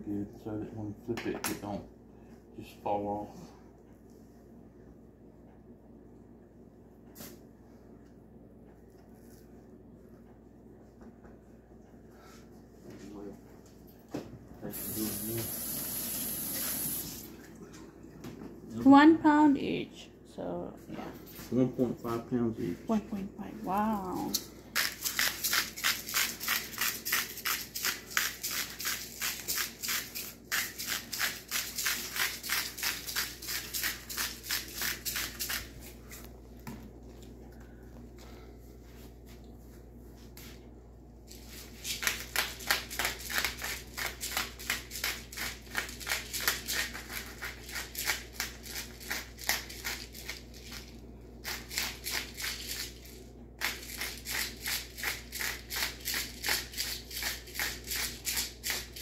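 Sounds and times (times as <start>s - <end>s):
spice grinder grinding: 24.7s - 35.8s, 41.9s - 59.0s.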